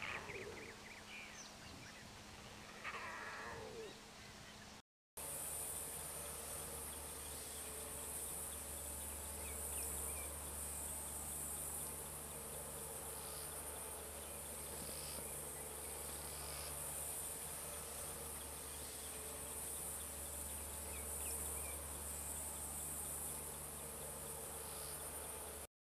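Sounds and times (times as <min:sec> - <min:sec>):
faint low hum: 0:00.0 - 0:25.7
crickets trilling: 0:05.2 - 0:25.6.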